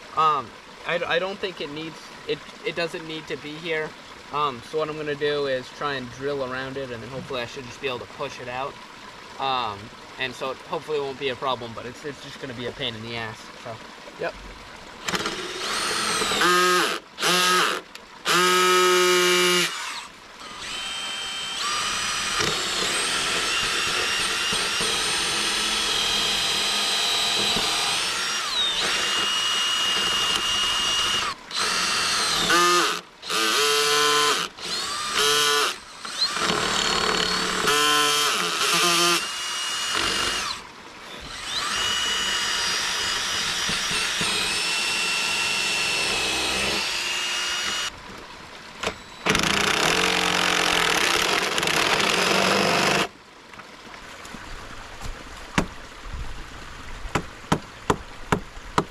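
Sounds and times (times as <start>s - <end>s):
drill boring into wood: 15.0s - 48.0s, 48.8s - 53.1s.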